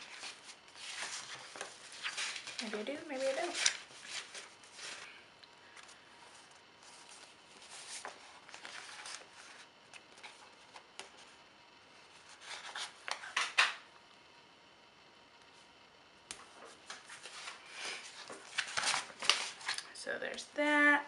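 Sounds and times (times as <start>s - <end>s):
paper sheets rustling: 0.0s - 5.2s, 5.8s - 11.2s, 12.1s - 13.7s, 16.4s - 19.9s.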